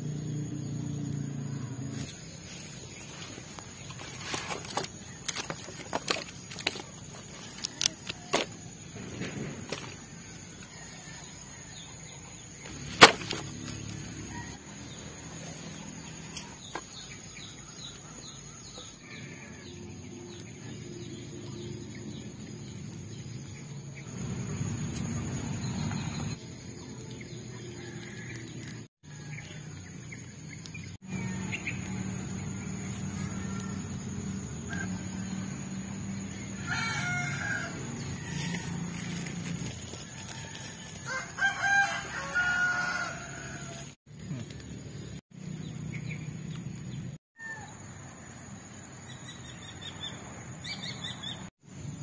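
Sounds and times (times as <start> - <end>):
machete striking firewood: 12.7 - 13.6.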